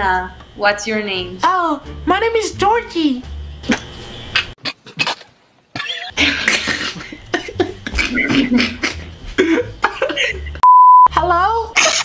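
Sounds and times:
person coughing: 0:05.8 - 0:10.4
censor bleep: 0:10.6 - 0:11.1.

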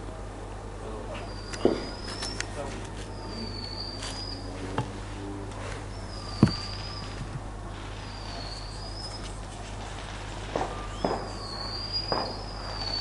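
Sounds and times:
firework whistles: 0:01.2 - 0:02.5, 0:06.0 - 0:13.0
dull firework bangs: 0:01.6 - 0:02.0, 0:09.8 - 0:13.0.

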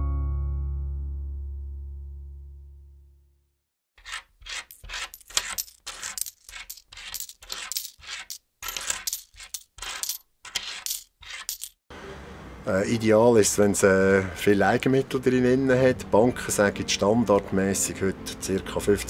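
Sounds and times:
coins clinking and dropping: 0:04.0 - 0:11.8.

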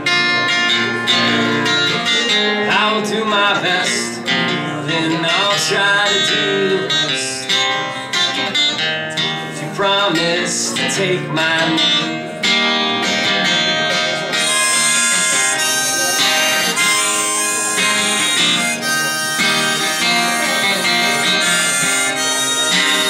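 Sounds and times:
strummed acoustic guitar: 0:00.0 - 0:23.0
harmonica melody: 0:11.8 - 0:23.0.

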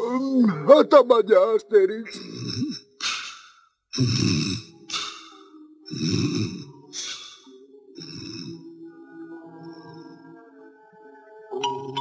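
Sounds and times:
cartoon snoring: 0:02.2 - 0:08.6.

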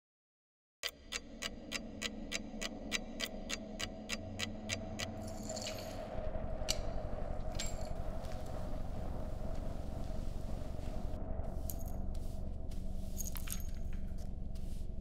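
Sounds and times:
sharp clicks: 0:00.8 - 0:05.2
wall clock ticking: 0:00.8 - 0:05.2
steady low hum: 0:00.9 - 0:15.0.

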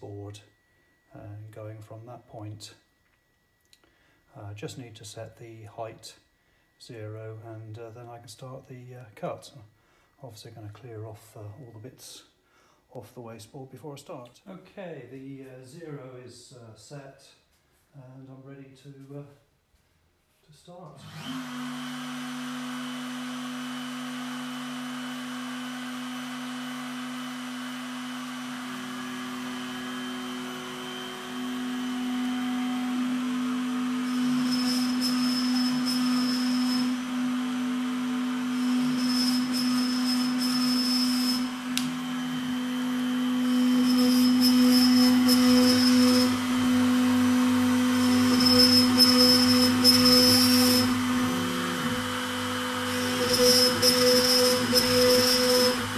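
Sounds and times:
router bit cutting into board: 0:21.0 - 0:55.9
router spindle whining: 0:21.0 - 0:55.9.

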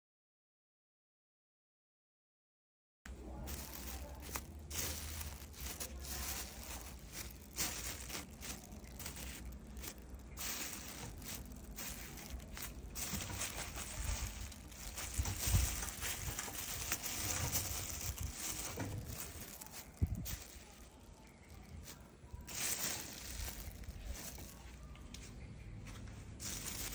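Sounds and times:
plastic bags crinkling: 0:03.1 - 0:25.0, 0:26.3 - 0:26.9.

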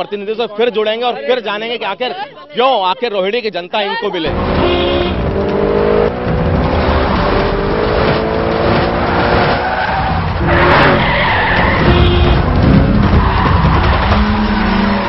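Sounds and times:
vehicle engine revving: 0:04.3 - 0:15.0
rushing skid-like noise: 0:06.4 - 0:15.0.

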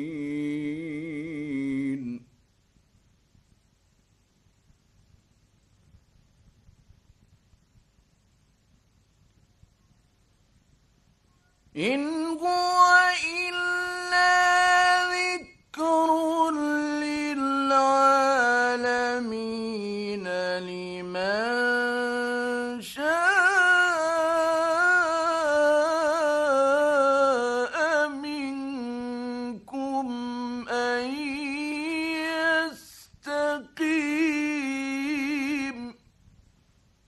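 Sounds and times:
man chanting: 0:00.0 - 0:02.3, 0:11.8 - 0:36.0.

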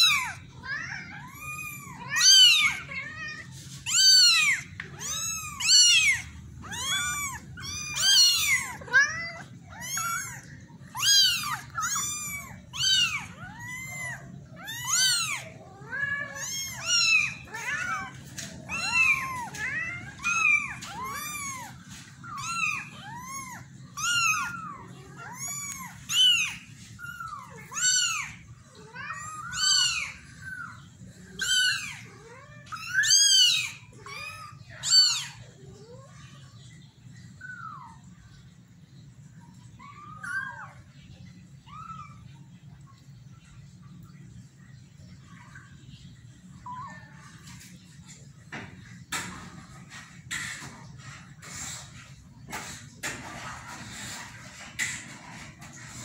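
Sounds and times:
kitten meowing: 0:00.0 - 0:30.2.

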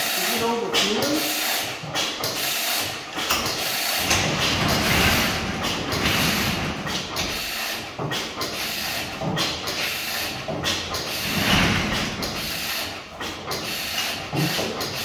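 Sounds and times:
garage door rolling up: 0:03.2 - 0:15.0.

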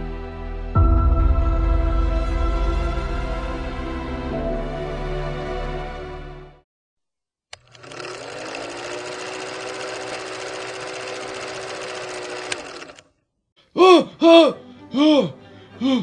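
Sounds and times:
film projector clattering: 0:07.5 - 0:13.1.

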